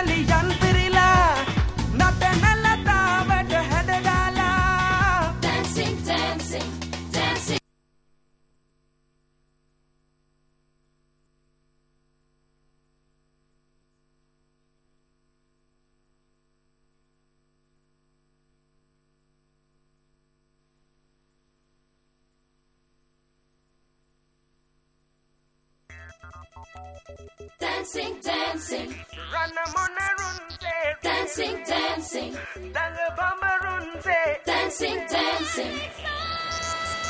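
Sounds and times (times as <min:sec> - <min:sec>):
music: 0:00.0 - 0:07.6, 0:25.9 - 0:37.0
faint electrical mains hum: 0:07.6 - 0:26.8
thin high whine: 0:07.6 - 0:32.6.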